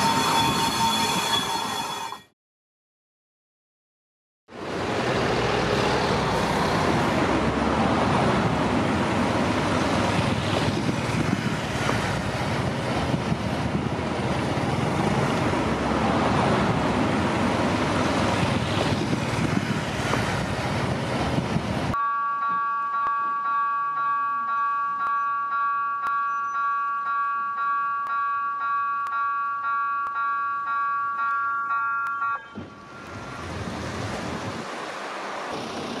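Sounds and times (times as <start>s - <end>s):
road traffic passing: 4.5s - 22.0s, 28.4s - 36.0s
level crossing warning bell: 21.9s - 33.1s.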